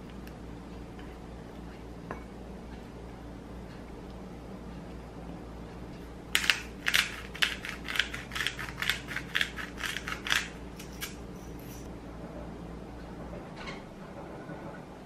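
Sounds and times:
pepper grinder crunching: 6.4 - 11.8.

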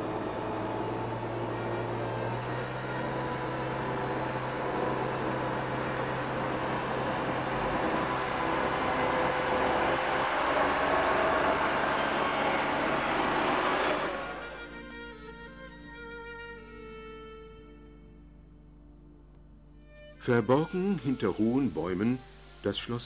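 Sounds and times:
tractor diesel engine running: 0.0 - 15.1.

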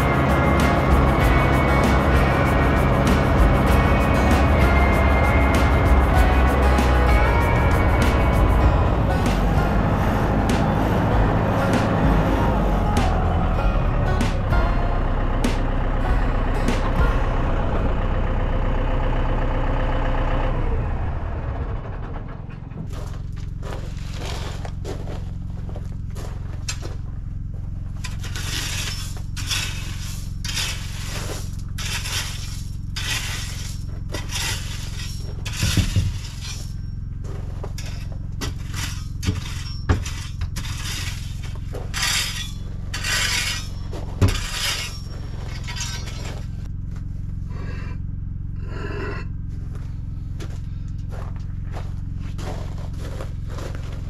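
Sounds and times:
tractor engine running: 0.0 - 54.0
pavers scraping and clinking on gravel: 22.8 - 47.4, 49.4 - 54.0
steady low hum: 22.8 - 54.0.

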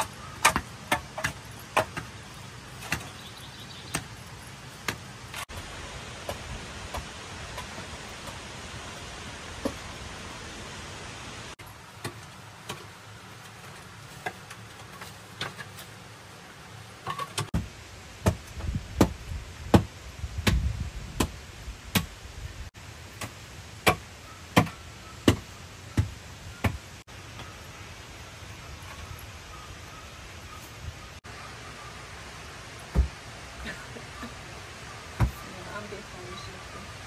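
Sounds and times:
pick and shovel striking earth: 0.0 - 3.3.

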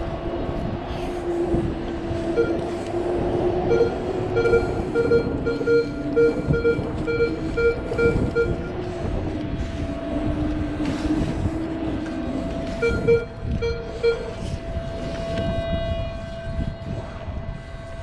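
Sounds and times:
steady low hum: 0.0 - 18.0
metal detector beeping: 2.3 - 2.9, 3.7 - 8.8, 12.5 - 14.6.

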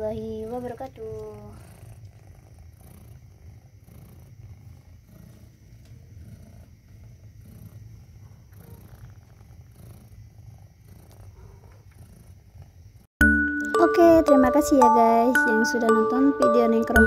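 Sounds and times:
cat purring: 0.0 - 13.1.

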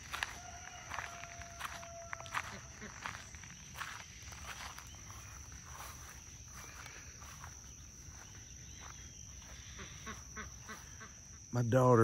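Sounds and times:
soft footsteps on grass: 0.0 - 11.2
insect chorus drone: 0.0 - 12.0.

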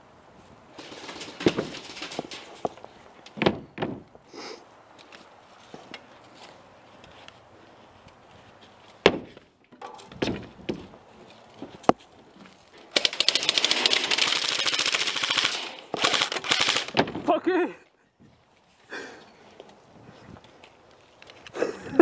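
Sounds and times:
airsoft rifle firing bursts: 12.9 - 17.0.

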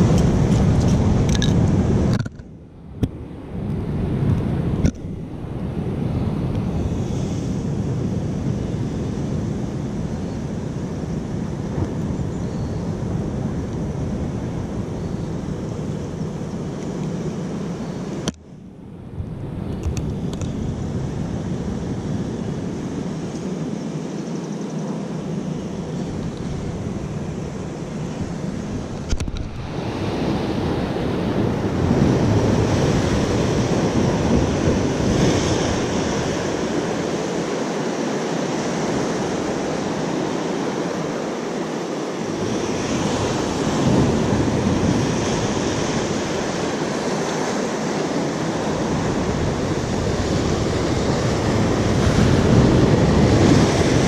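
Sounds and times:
sea surf washing over rocks: 0.0 - 2.3, 26.6 - 54.0
wind buffeting microphone: 0.0 - 18.4, 19.0 - 41.2, 42.2 - 54.0.

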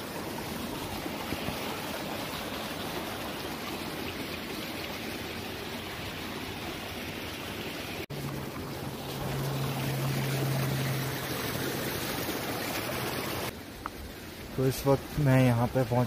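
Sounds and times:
mountain stream flowing: 0.0 - 16.0.

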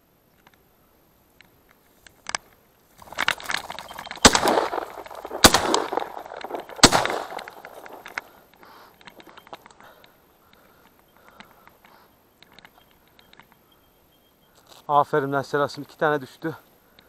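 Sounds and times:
birds flushing wingbeats: 3.0 - 8.4
shotgun shots: 3.2 - 8.4.

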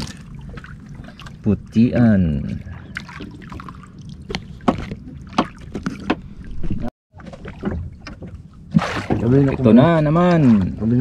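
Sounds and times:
water lapping against boat: 0.0 - 11.0
sharp splashes: 2.7 - 5.8, 8.7 - 9.6.

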